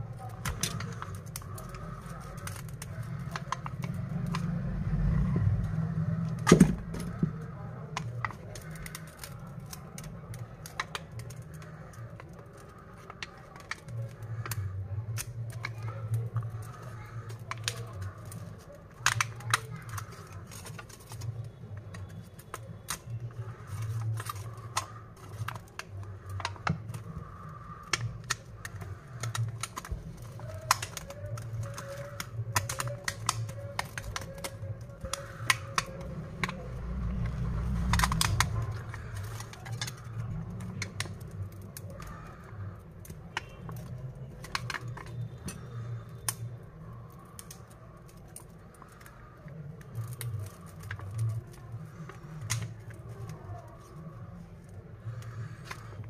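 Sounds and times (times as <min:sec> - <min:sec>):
low steady hum: 0:00.0 - 0:13.3
prying tool clicking and scraping: 0:06.4 - 0:49.1.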